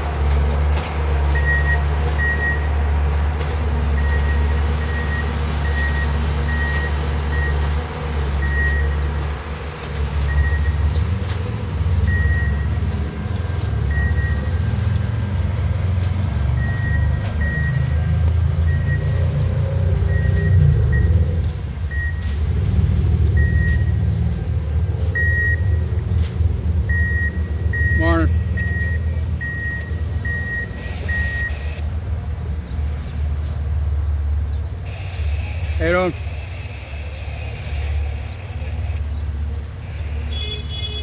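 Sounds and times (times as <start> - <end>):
track machine engine rumble: 0.0 - 41.0
short high warning beeps: 26.9 - 31.6.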